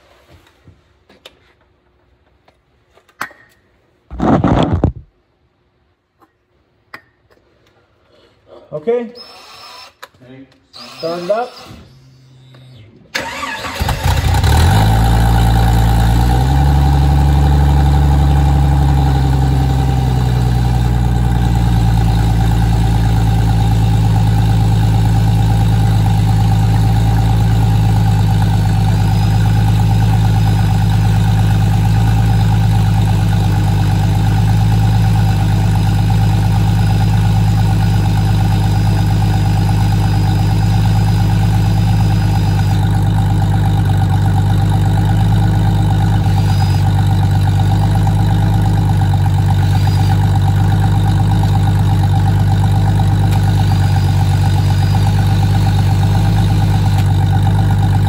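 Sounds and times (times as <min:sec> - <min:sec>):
car engine cranking and idling: 0:13.1 - 0:58.0.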